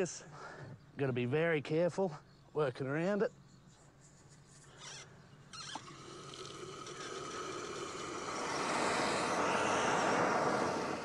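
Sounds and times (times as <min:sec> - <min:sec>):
valve squeak: 0:04.7 - 0:06.0.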